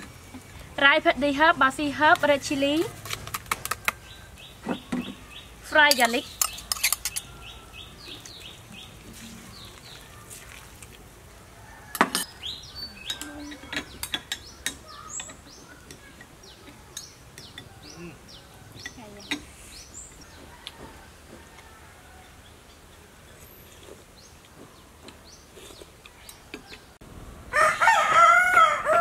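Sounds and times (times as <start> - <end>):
bird chirping: 3.6 - 10.2, 12.2 - 20.7
spoons clinking on ceramic bowls: 5.9 - 7.3.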